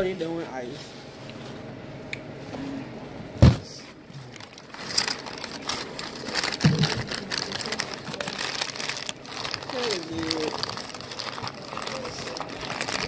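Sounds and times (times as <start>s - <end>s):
paper wrapper crinkling: 4.2s - 13.0s.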